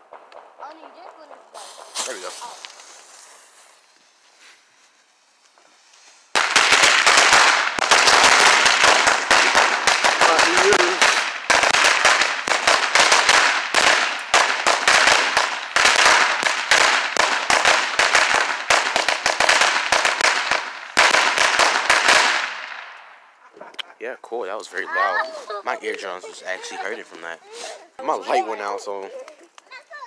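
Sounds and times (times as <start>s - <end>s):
firecrackers banging: 0.0s - 4.5s, 5.6s - 23.7s.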